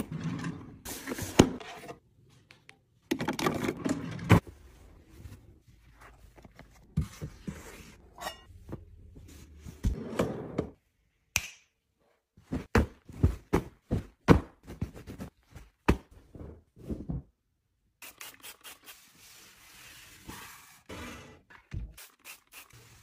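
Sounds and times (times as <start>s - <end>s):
finger snap: 11.3s - 11.8s.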